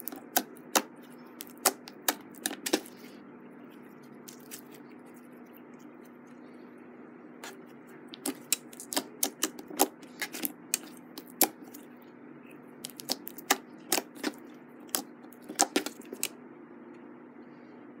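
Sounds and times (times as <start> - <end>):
slime clicking and popping: 0.0 - 2.9, 8.2 - 11.8, 12.8 - 16.3.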